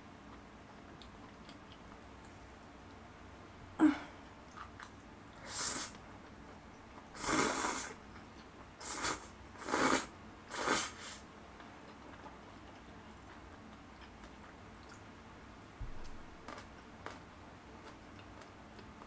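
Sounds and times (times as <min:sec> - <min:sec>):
person slurping noodles: 0:07.2 - 0:07.9, 0:08.8 - 0:11.2.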